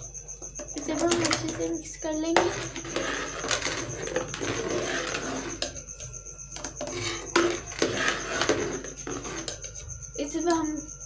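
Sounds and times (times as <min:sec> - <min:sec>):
metal spoon scraping steel pot: 0:02.3 - 0:09.9.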